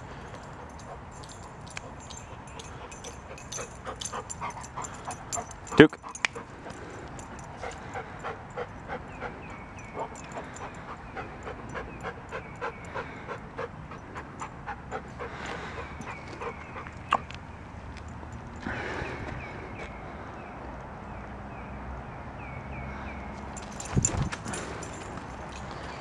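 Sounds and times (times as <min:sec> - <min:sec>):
dog panting: 0:00.1 - 0:17.3.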